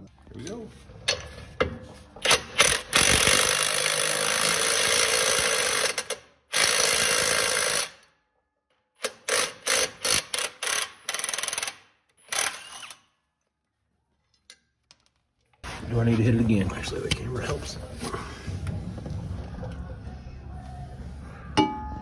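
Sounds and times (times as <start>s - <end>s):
impact wrench hammering: 9.0s - 11.8s.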